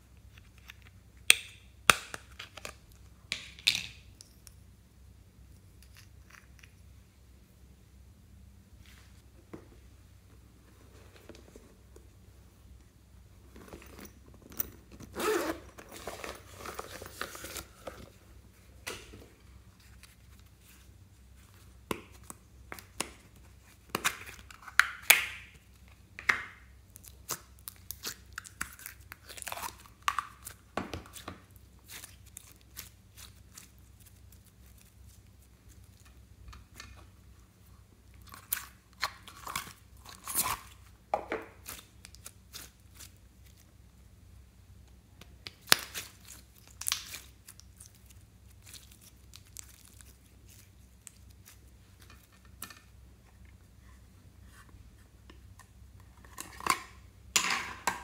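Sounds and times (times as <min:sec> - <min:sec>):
slime squeezing and tearing: 0:45.6 - 0:51.7.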